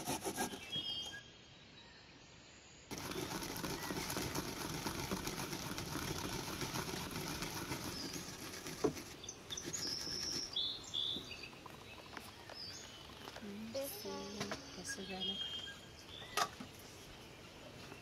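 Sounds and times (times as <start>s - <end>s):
bird chirps: 0.4s - 4.1s, 9.1s - 18.0s
garlic rasping on a metal grater: 3.0s - 8.8s.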